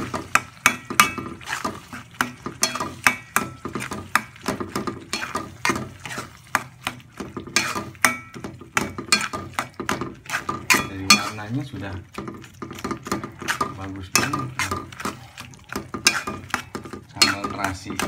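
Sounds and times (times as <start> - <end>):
metal spoon scraping metal pan: 0.0 - 18.0.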